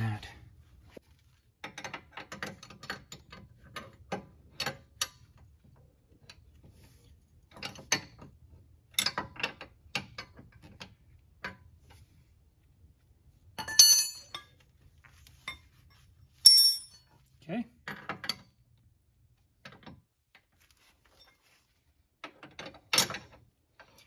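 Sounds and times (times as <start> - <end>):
bright metallic clink: 13.6 - 14.5, 16.4 - 17.1.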